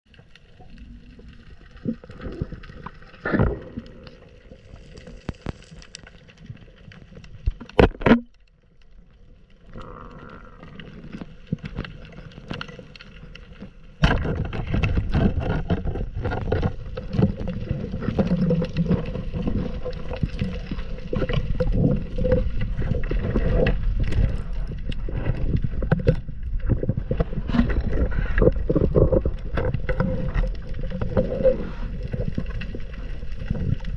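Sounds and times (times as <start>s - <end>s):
underwater clicks and crackles: 0.1s - 33.9s
rumble of churning water: 9.6s - 33.9s.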